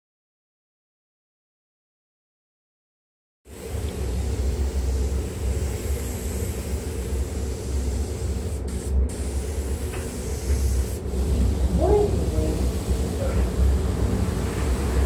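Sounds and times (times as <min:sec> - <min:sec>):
spray gun hissing: 0:03.5 - 0:15.0
steady low rumble: 0:06.9 - 0:15.0.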